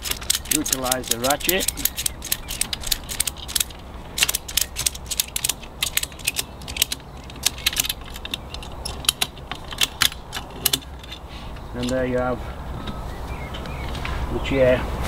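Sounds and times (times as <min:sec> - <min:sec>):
ratchet strap pawl clicking: 0:00.0 - 0:12.0.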